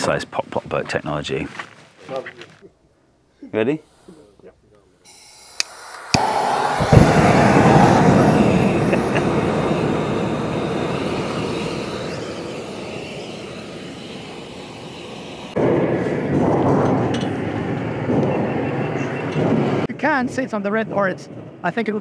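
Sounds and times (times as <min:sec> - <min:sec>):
gas hissing: 0:05.0 - 0:15.6
gas burner flame rushing: 0:05.1 - 0:18.4
loud noise: 0:05.1 - 0:19.9
burner clicks: 0:05.3 - 0:15.6.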